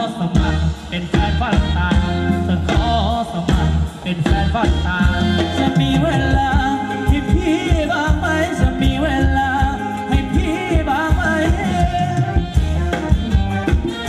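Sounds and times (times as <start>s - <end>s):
steady drum beat: 0.0s - 14.0s.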